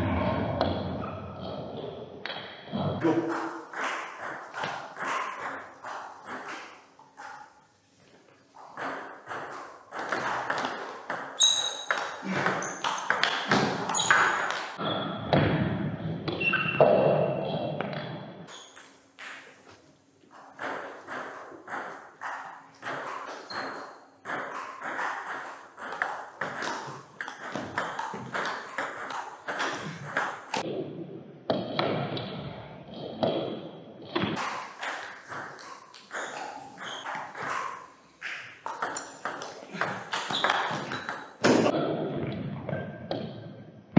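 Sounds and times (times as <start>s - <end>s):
ball bouncing on table: 3.0s - 7.5s, 8.7s - 15.7s, 18.8s - 30.7s, 34.2s - 43.3s
ping pong ball on bats: 3.0s - 7.6s, 8.6s - 15.6s, 16.2s - 30.7s, 33.1s - 43.4s.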